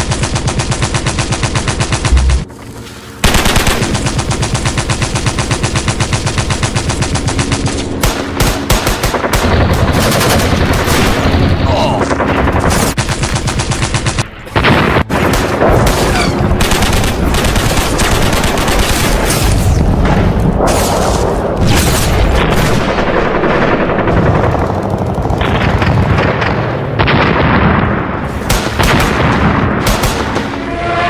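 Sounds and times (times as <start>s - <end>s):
machine-gun fire: 0.0s - 2.6s, 3.2s - 11.6s, 12.2s - 19.7s, 21.6s - 30.5s
heavy gun blasts: 14.2s - 30.7s
rifle shots: 21.6s - 30.6s.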